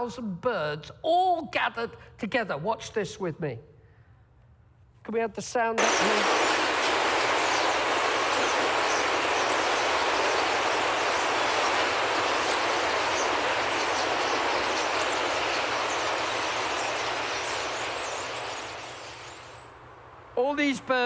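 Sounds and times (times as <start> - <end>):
faint high bird chirps: 5.8 - 19.7
whoosh of flock wings: 5.8 - 19.7.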